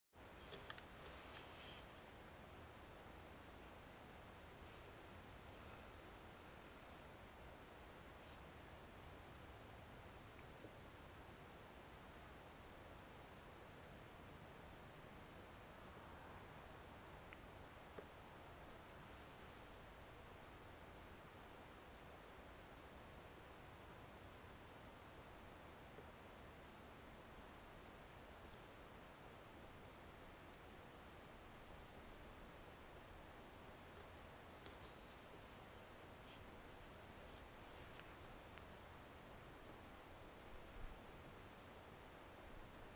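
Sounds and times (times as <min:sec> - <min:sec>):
crickets chirring: 0:00.2 - 0:42.9
faint ticks: 0:00.3 - 0:02.1, 0:09.7 - 0:10.9, 0:17.1 - 0:18.3, 0:30.2 - 0:30.9, 0:33.7 - 0:39.0.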